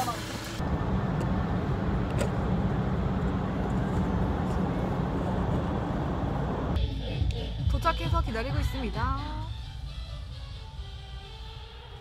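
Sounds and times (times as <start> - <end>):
road and engine rumble in car: 0.3 - 7.3.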